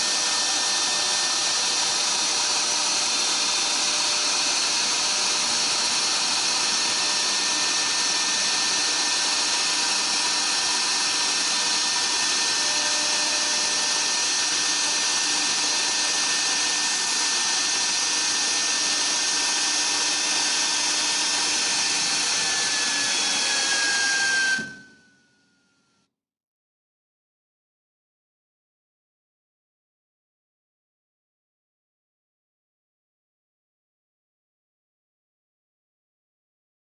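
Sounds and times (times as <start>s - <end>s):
router spindle high-pitched whine: 0.0s - 25.6s.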